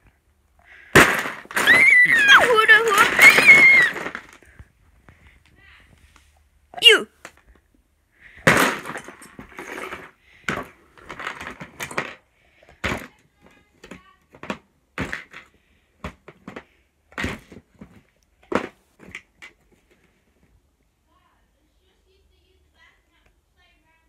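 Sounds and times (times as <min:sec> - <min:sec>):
rustling handling noise: 0:00.7 - 0:20.7
plastic bricks clicking and clattering: 0:00.9 - 0:04.6, 0:08.4 - 0:19.6.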